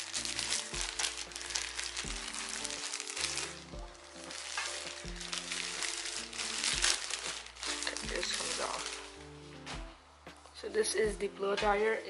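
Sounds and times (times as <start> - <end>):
plastic bag crinkling: 0.0 - 9.3
background music: 0.0 - 12.0.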